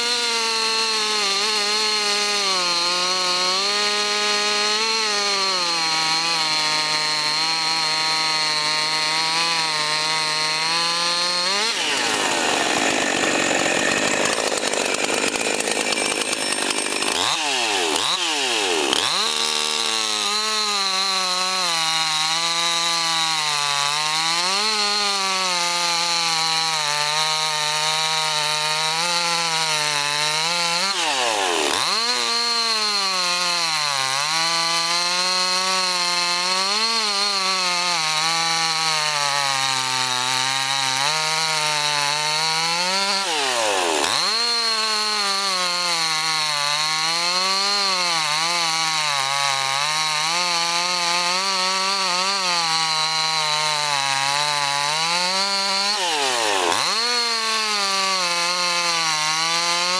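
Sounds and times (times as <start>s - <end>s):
chainsaw cutting log: 0.0s - 59.9s.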